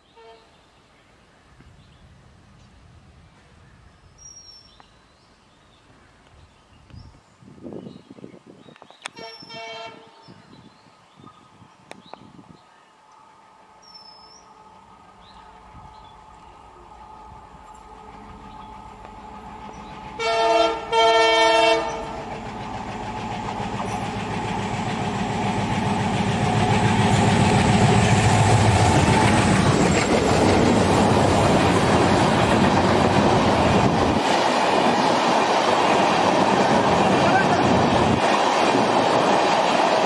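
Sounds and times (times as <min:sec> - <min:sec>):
locomotive horn blasts: 0:00.1 - 0:00.5, 0:09.1 - 0:10.3, 0:20.2 - 0:22.2
train wheels on rails: 0:11.3 - 0:40.0.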